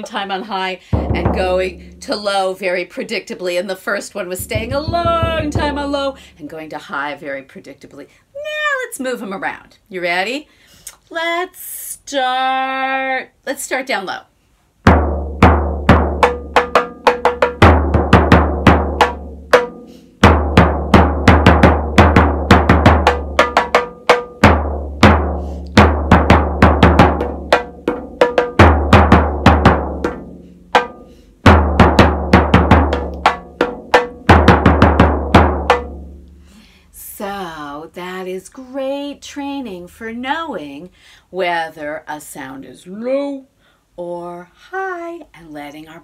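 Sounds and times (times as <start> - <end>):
low-pitched frame drum: 1.0 - 2.2, 4.4 - 6.2, 14.9 - 36.3
small high-pitched drum: 1.0 - 2.2, 4.4 - 6.1, 14.9 - 36.3.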